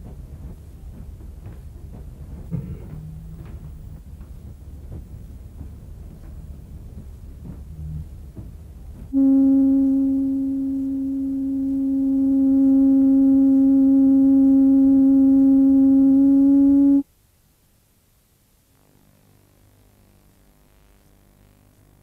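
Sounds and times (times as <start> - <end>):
steady low electronic tone: 9.1 - 17.0.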